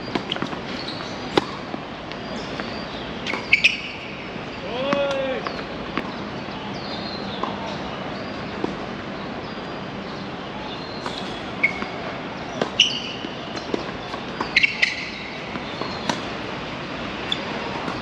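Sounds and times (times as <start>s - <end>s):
outdoor background noise: 0.0s - 18.0s
short high squeaks: 3.2s - 4.0s, 11.0s - 12.0s.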